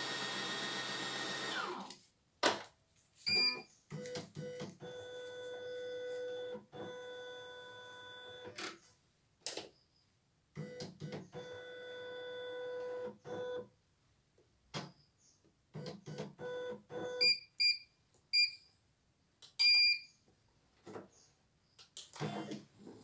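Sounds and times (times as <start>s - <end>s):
stepper motor whine: 0.0s - 1.9s
machine beep: 3.3s - 6.1s.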